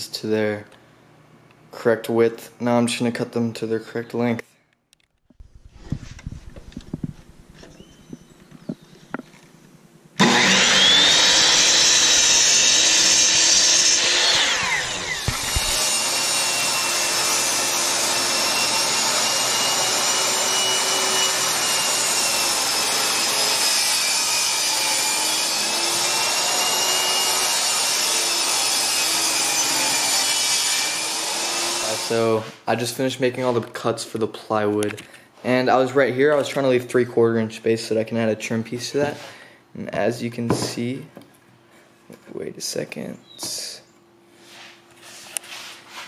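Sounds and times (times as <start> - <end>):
table saw cutting plywood: 10.2 - 32.6.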